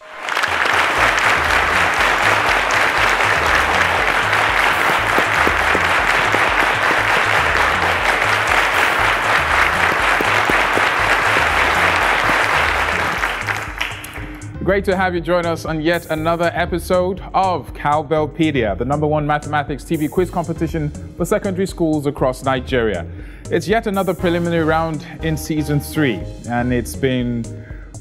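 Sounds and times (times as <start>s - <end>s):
audience clapping: 0.0s - 14.4s
music with pulsing bass beat: 1.0s - 14.6s.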